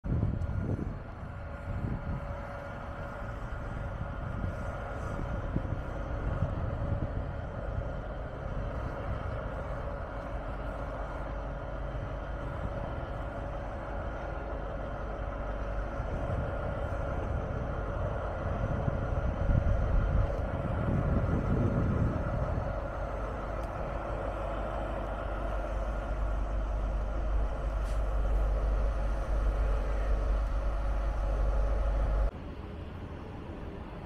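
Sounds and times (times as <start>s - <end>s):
constant hum: 0.0s - 34.0s
train rumble: 0.0s - 34.0s.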